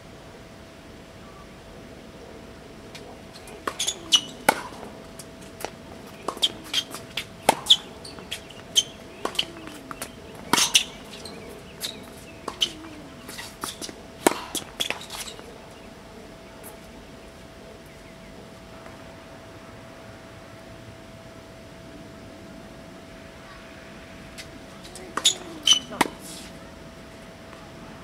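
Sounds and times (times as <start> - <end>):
faint steady hum: 0.0 - 28.0
rackets striking tennis ball: 3.0 - 15.5, 24.8 - 26.5
ball bouncing on hard court: 8.8 - 15.0.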